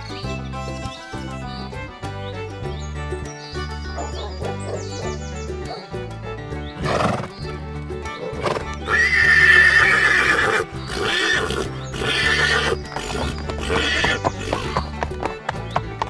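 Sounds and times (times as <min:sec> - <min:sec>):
children's background music: 0:00.0 - 0:16.0
hoof clip-clops: 0:03.8 - 0:16.0
horse neighs: 0:06.8 - 0:07.4, 0:08.2 - 0:14.8
horse whinny: 0:06.8 - 0:07.4, 0:08.3 - 0:14.9.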